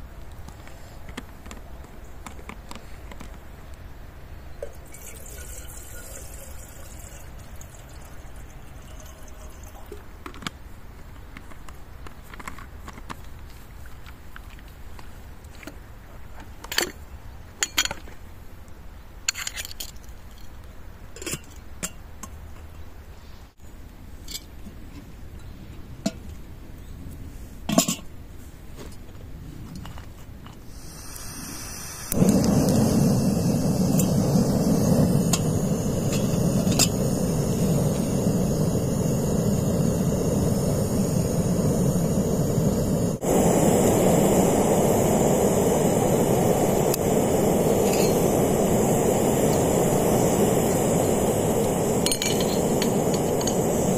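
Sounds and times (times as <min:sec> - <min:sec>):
tea-making gear clinking: 0:04.6 - 0:10.0, 0:47.6 - 0:48.8, 0:51.5 - 0:53.9.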